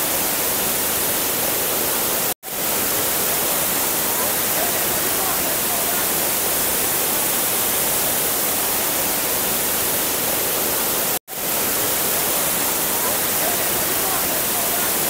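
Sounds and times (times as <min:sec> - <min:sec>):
waterfall roaring: 0:00.0 - 0:15.0.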